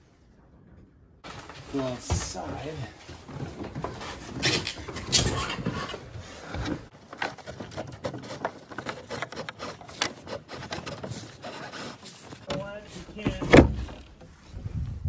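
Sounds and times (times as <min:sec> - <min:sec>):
cable scraping against wooden boards: 0:03.8 - 0:14.3.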